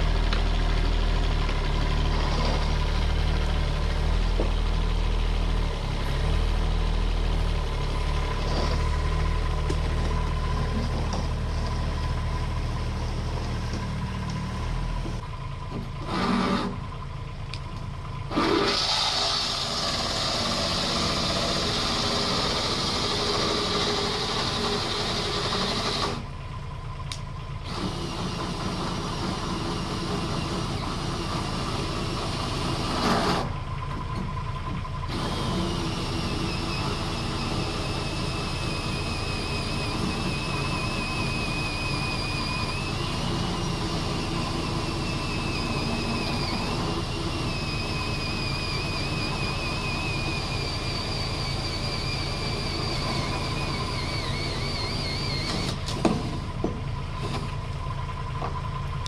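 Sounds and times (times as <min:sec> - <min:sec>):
diesel engine idling: 0:00.0 - 0:59.0
power drill whining into steel: 0:08.1 - 0:13.9, 0:16.0 - 0:16.9, 0:18.3 - 0:26.3, 0:27.6 - 0:58.0.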